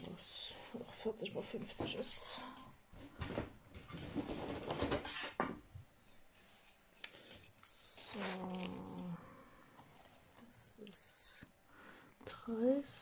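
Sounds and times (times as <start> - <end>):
plastic bag crinkling: 6.4 - 10.4.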